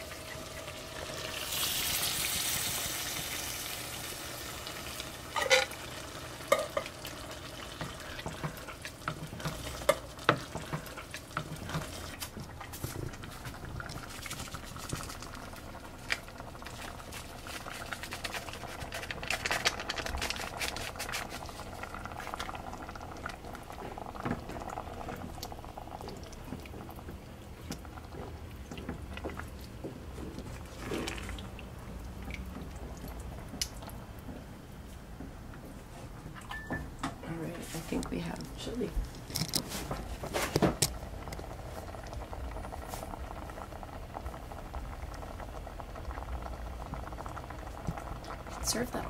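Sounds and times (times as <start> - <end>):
wooden spoon stirring thick chili: 7.6 - 15.3.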